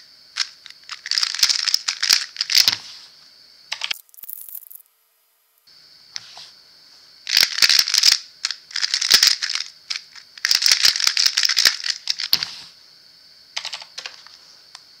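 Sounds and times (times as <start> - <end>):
plastic puzzle clacking and snapping: 0.4 - 2.8, 7.3 - 12.5.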